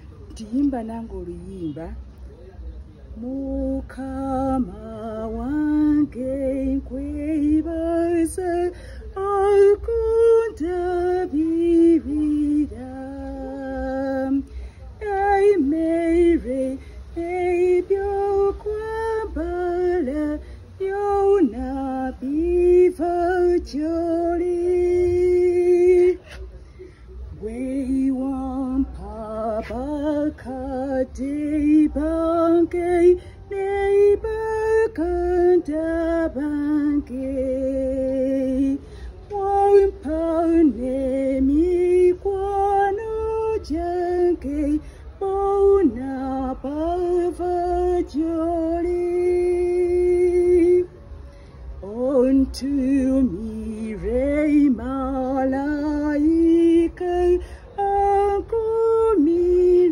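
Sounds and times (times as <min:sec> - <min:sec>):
woman singing gospel song: 0:03.2 - 0:26.5, 0:27.3 - 0:51.0, 0:51.7 - 0:59.9.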